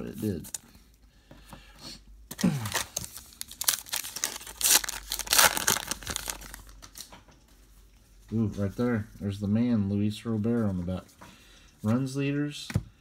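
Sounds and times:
card pack wrapper tearing and crinkling: 0:02.3 - 0:07.1.

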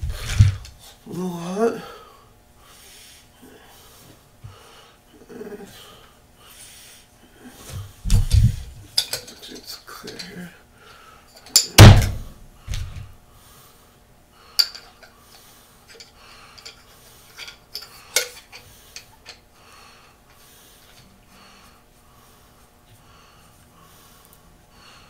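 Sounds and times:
heavy thumps: 0:07.7 - 0:08.8, 0:11.8 - 0:13.1
tools clicking on workbench: 0:09.0 - 0:10.3, 0:14.6 - 0:15.1, 0:15.9 - 0:19.4.

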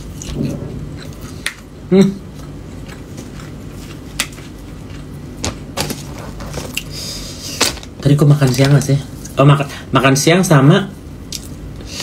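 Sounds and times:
chewing fried food: 0:00.0 - 0:05.7.

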